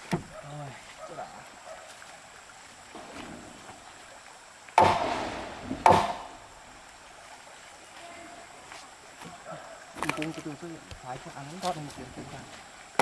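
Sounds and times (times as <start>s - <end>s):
heavy blows on timber: 4.8s - 6.4s.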